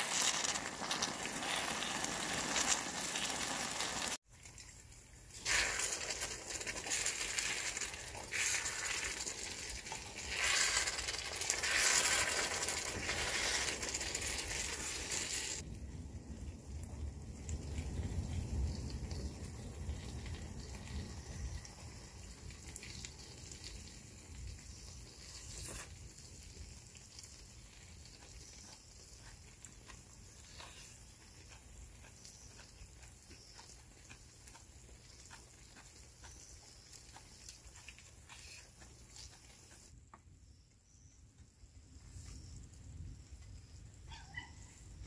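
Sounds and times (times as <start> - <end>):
meat sizzling in a pan: 0.0 - 4.2, 5.4 - 15.6
fire crackling and popping: 0.0 - 32.5.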